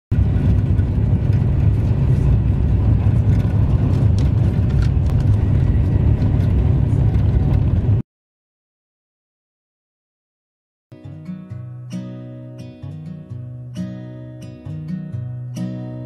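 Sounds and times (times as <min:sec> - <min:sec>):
vehicle rumble from inside: 0:00.1 - 0:08.0.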